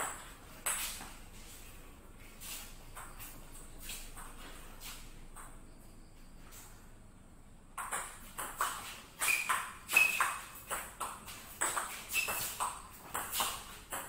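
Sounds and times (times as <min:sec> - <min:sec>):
table tennis ball tapping: 0:07.8 - 0:14.0.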